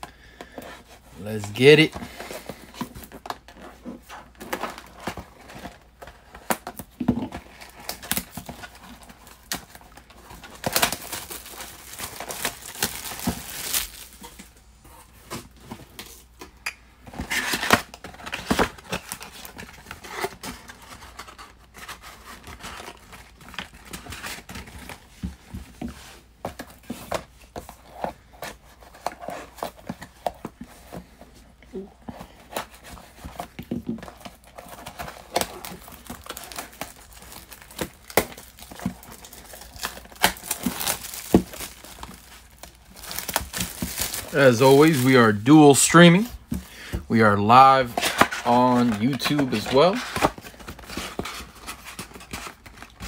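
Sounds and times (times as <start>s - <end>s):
plastic wrap crinkling: 1.1s - 15.6s, 32.5s - 53.0s.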